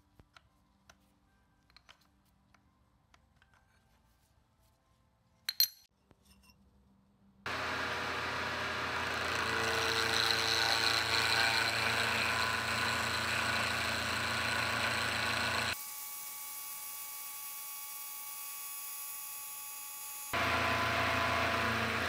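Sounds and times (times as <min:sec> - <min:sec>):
milling machine cutting metal: 0:07.5 - 0:15.8, 0:20.4 - 0:22.0.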